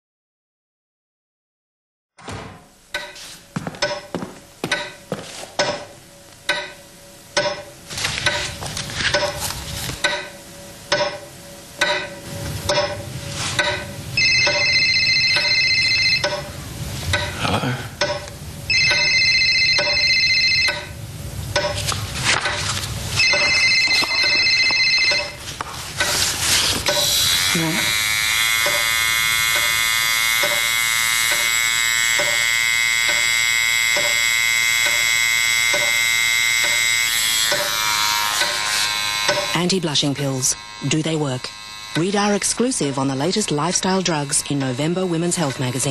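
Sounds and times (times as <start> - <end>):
sharp clicks and knocks: 3.8 - 5.0, 5.6 - 6.8, 10.0 - 13.0
electric razor buzzing: 26.2 - 45.9.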